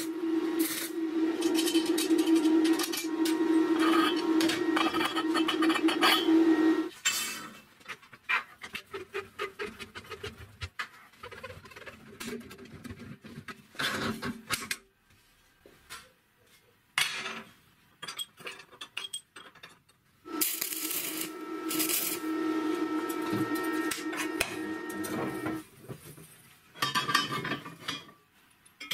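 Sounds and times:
steady hum with held tone: 0.0s - 6.9s, 20.3s - 25.6s.

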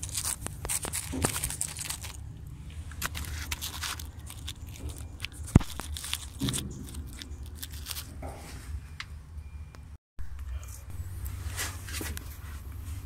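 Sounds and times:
crackling handling noise: 0.0s - 9.1s
low steady rumble: 0.0s - 13.0s.

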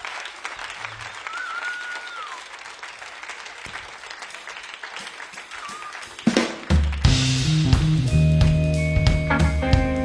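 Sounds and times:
audience applauding: 0.0s - 7.6s
whistle from crowd: 1.2s - 2.5s, 5.5s - 6.1s
band hit and bass notes: 7.0s - 10.0s.

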